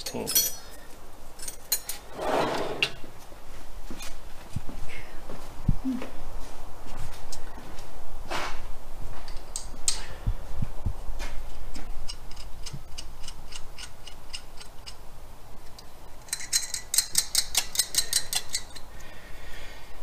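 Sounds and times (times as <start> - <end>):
hand ratchet clicking: 16.3 - 18.8.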